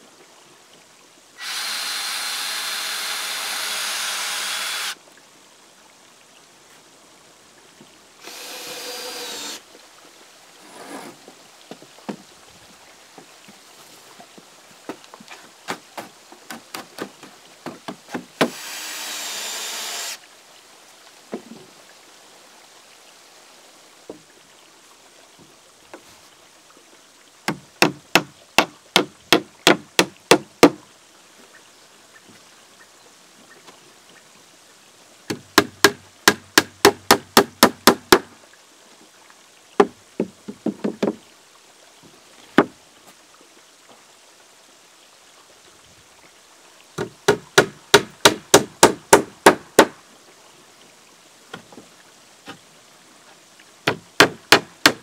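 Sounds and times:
small power tool whirring: 1.4 - 5.0, 8.2 - 9.6, 18.5 - 20.2
hammer striking nails into wood: 53.9 - 55.0.

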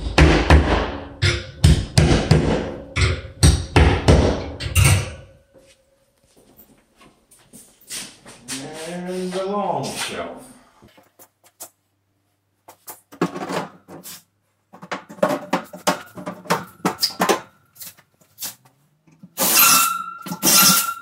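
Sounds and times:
wire shelf clinking and knocking: 1.2 - 5.4, 14.7 - 17.6.

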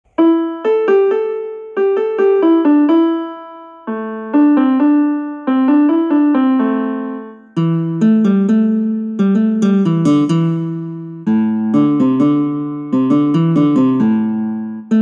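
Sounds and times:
electric piano ringtone melody: 0.1 - 15.0.

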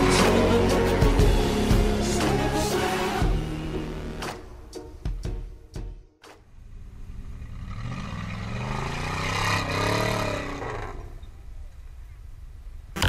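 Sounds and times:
buggy engine revving hard: 7.0 - 11.4.

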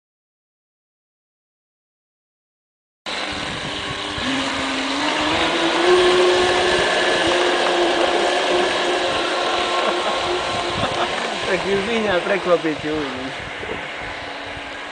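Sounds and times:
electric motor and propeller whining: 3.1 - 14.9
hiss of water and wind: 3.1 - 14.9.

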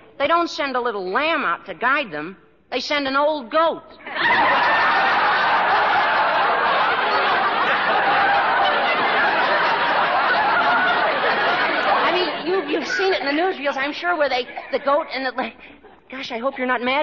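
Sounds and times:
dialogue: 0.2 - 17.0
audience laughing: 4.1 - 16.8.

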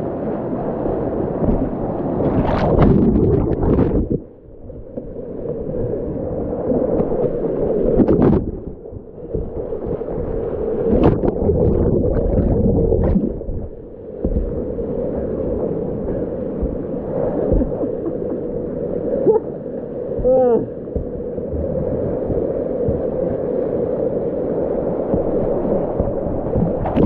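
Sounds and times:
paddle stroke splashes: 7.0 - 27.0.

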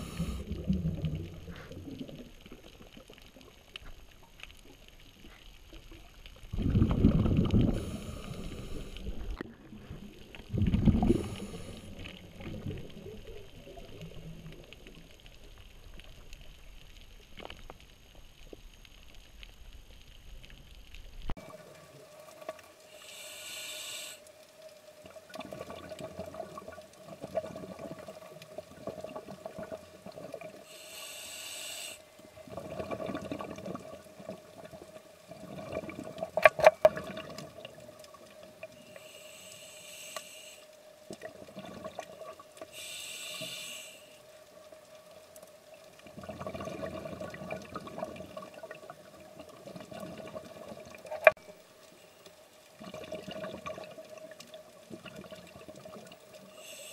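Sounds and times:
regulator inhale hiss: 0.0 - 0.7, 7.7 - 9.4, 10.9 - 12.2, 22.8 - 24.5, 30.6 - 32.3, 38.8 - 41.0, 42.6 - 44.5, 56.4 - 56.9
faint steady tone: 0.0 - 2.6, 7.6 - 36.0, 36.6 - 56.9
exhaled bubbles rumbling: 0.0 - 3.8, 5.8 - 15.6, 25.1 - 30.6, 32.3 - 38.7, 41.1 - 42.4, 46.0 - 51.4, 52.7 - 56.4.

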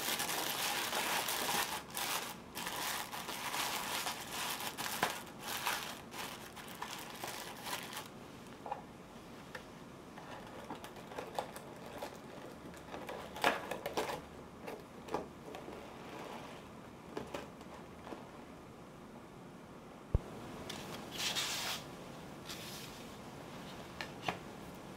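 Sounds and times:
tissue paper rustling: 0.0 - 8.1.

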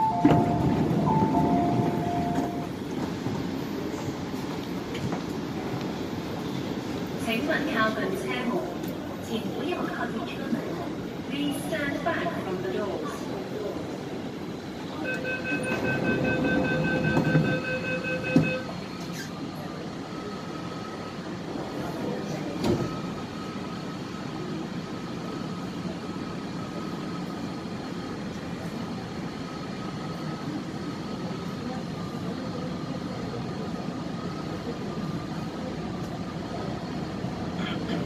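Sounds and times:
door-closing warning beeps: 0.0 - 2.7, 15.0 - 19.3
train doors shutting with thud: 0.0 - 3.6, 15.2 - 19.4, 22.4 - 23.1
train rumbling: 0.0 - 20.1.

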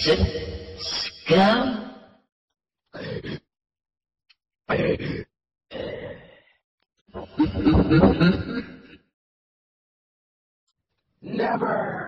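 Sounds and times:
man grunting and groaning: 3.0 - 3.5, 4.7 - 6.4.

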